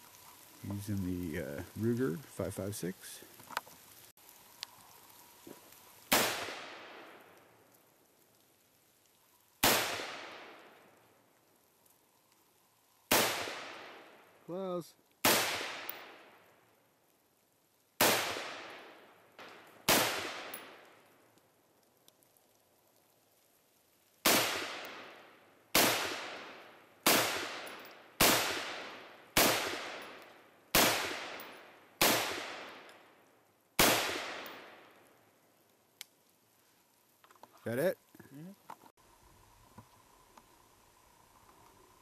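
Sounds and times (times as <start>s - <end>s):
rifle shots: 6.1s - 7.2s, 9.6s - 10.8s, 13.1s - 14.1s, 15.2s - 16.4s, 18.0s - 20.8s, 24.2s - 32.9s, 33.8s - 34.8s.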